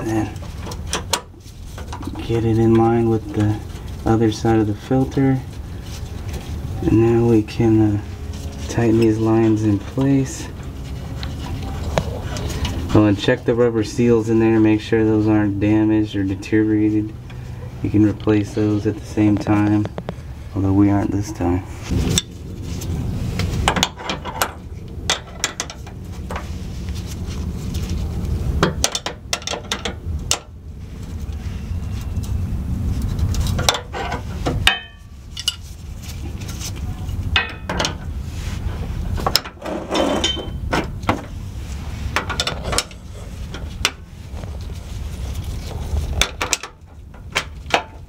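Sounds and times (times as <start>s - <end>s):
low hum: 0.0s - 48.0s
metal wrenches clinking and scraping: 23.7s - 26.4s, 33.0s - 38.1s, 39.1s - 41.1s, 42.0s - 44.1s.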